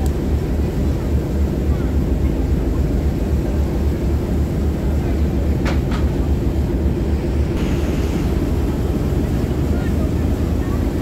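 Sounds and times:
boat engine rumbling: 0.0 - 11.0
rushing hiss: 7.6 - 9.2.

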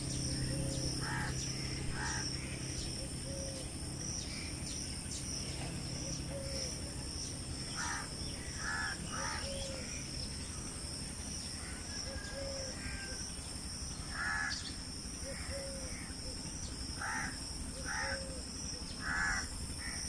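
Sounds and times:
high-pitched insect drone: 0.0 - 20.0
crows cawing: 1.0 - 2.6, 7.7 - 9.9, 11.6 - 13.2, 14.1 - 14.7, 17.0 - 18.4, 19.0 - 20.0.

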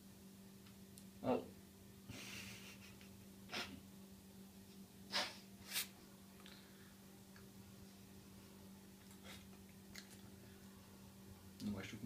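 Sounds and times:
steady low hum: 0.0 - 12.0
man eating with mouth full: 9.0 - 10.4.

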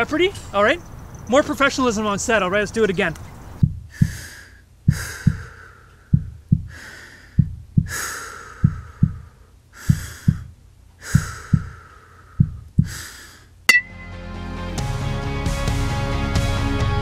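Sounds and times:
heartbeat double thump: 3.6 - 4.2, 4.9 - 5.5, 6.1 - 6.8, 7.4 - 8.0, 8.6 - 9.2, 9.9 - 10.5, 11.2 - 11.7, 12.4 - 13.0
heavy breathing: 3.9 - 13.6.

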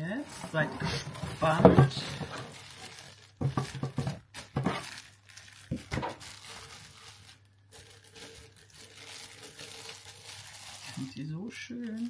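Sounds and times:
packaging crinkling and rustling: 0.0 - 12.0.

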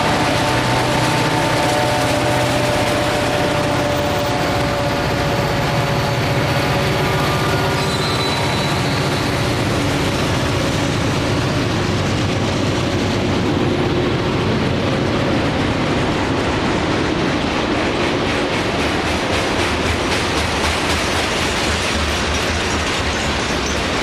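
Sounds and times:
diesel locomotive drone: 0.0 - 24.0
train wheels rumbling on rail: 0.0 - 24.0
wheels clicking over rail joints: 17.2 - 24.0.

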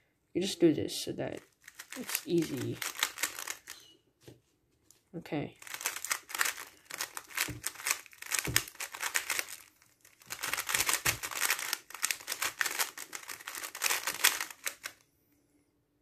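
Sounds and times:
puzzle cube plastic clicks: 1.4 - 3.9, 5.6 - 15.0.

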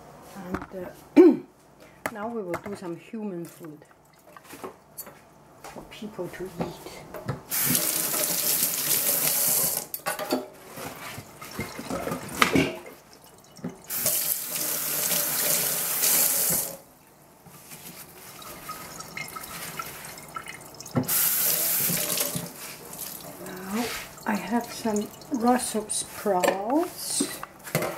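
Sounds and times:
kitchen tap running: 7.5 - 10.0, 11.3 - 16.8, 18.3 - 26.7.

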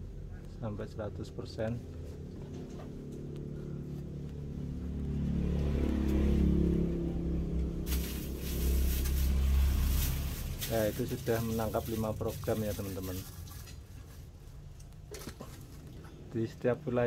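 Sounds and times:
vehicle engine passing: 0.4 - 13.6.

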